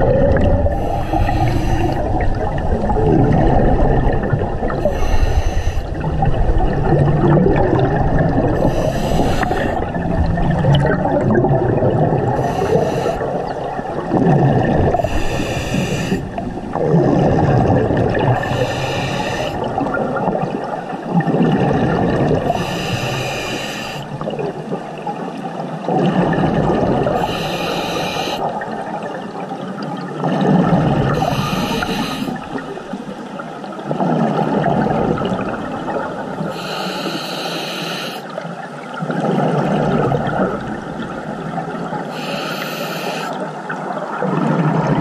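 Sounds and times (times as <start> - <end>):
exhaled bubbles burbling: 0.0 - 5.2, 5.8 - 33.1, 33.8 - 36.6, 38.3 - 42.2, 43.3 - 45.0
scuba regulator inhalation hiss: 0.8 - 2.0, 4.8 - 5.9, 8.6 - 9.9, 12.4 - 13.3, 15.0 - 16.3, 18.4 - 19.7, 22.5 - 24.1, 27.2 - 28.4, 31.2 - 32.5, 36.5 - 38.3, 42.1 - 43.4.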